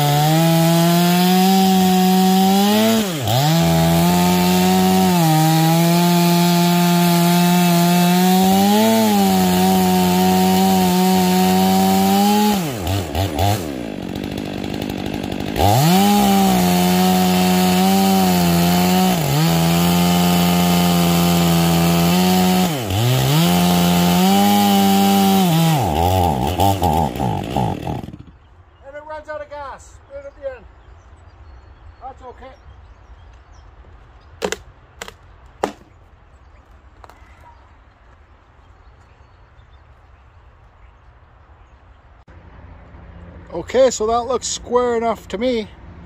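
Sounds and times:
chainsaw cutting a log: 0.0s - 28.4s, 34.4s - 35.9s.

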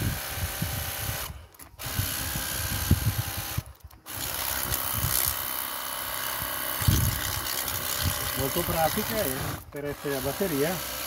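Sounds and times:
pressure washer spraying water: 6.9s - 11.0s.

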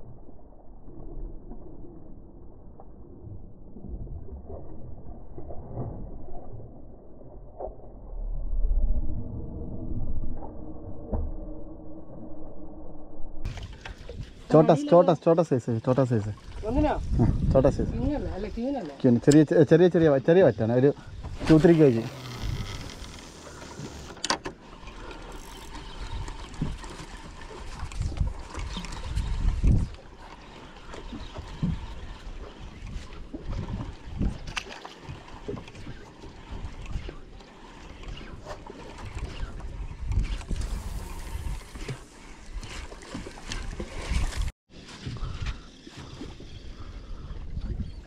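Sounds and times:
water lapping against boat hull: 13.5s - 48.0s
wind buffeting microphone: 16.4s - 18.8s, 25.9s - 30.2s, 31.0s - 37.2s, 38.0s - 42.8s, 43.5s - 48.0s
knocks and splashes: 26.0s - 37.3s.

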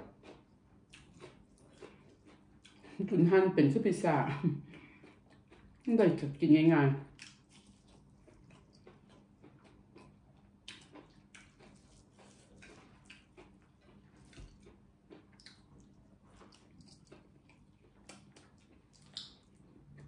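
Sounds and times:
wet chewing and lip smacks: 0.0s - 3.0s, 4.7s - 6.3s, 7.1s - 20.0s
fingers being licked: 15.2s - 19.6s.

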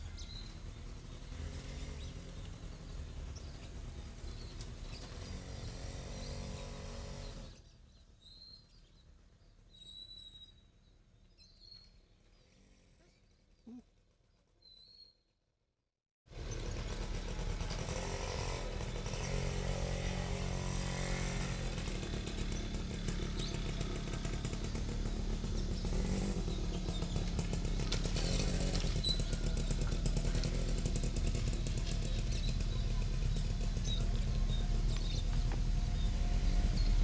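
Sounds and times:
diesel locomotive engine rumble: 16.4s - 37.0s.

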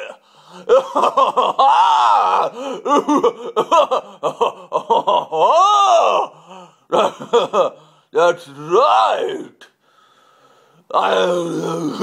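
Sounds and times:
man making wordless vocal sounds: 0.0s - 0.2s, 10.9s - 12.0s.

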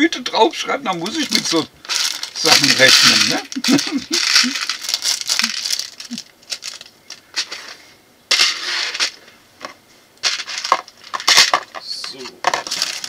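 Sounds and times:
plastic bags crinkling: 1.0s - 13.0s
plastic bricks clicking in tubs: 1.3s - 7.5s, 10.2s - 13.0s.

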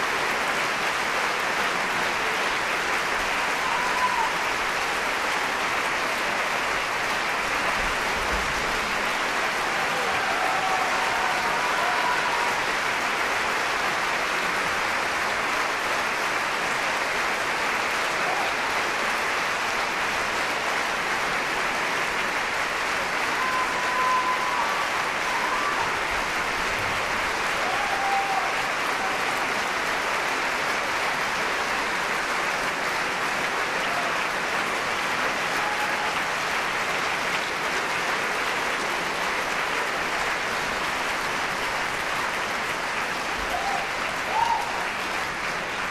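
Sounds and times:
audience applauding: 0.0s - 45.9s.

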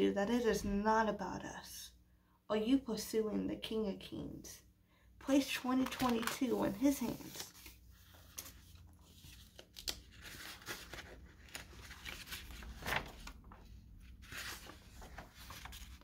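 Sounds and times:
paper rustling and crinkling: 5.5s - 16.0s.

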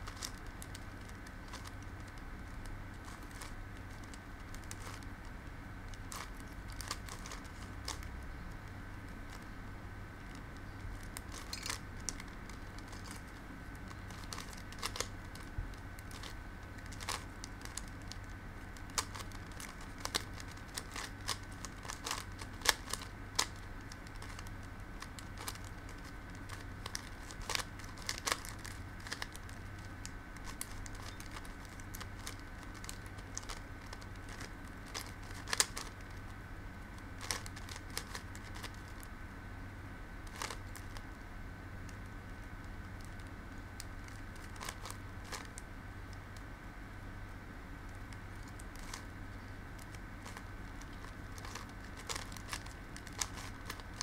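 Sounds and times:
faint steady hum: 0.0s - 54.0s
plastic puzzle clicking: 0.1s - 5.1s, 5.9s - 8.1s, 10.2s - 36.2s, 37.2s - 39.0s, 40.3s - 41.0s, 43.0s - 45.6s, 49.8s - 54.0s.

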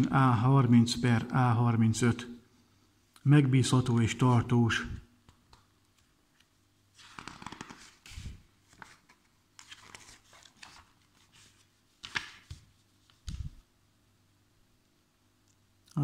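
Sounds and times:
magazine pages rustling: 7.0s - 13.6s.

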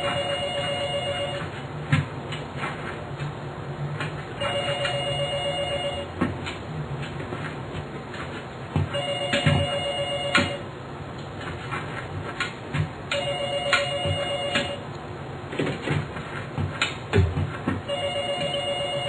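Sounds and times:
telephone ringing: 0.0s - 1.6s, 4.4s - 6.2s, 8.9s - 10.7s, 13.1s - 14.8s, 17.9s - 19.0s.

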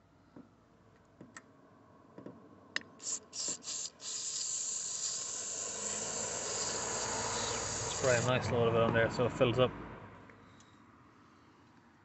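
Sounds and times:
aerosol can click: 2.8s - 6.9s
aerosol spray hissing: 3.0s - 8.4s.

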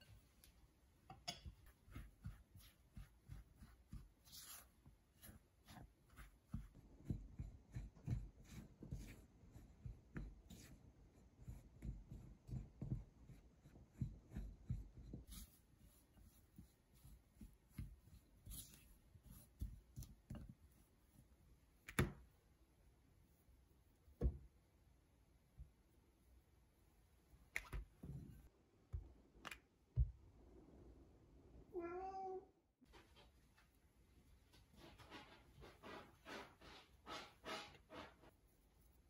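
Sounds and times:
spatula pressing dough in bowl: 1.1s - 21.2s.

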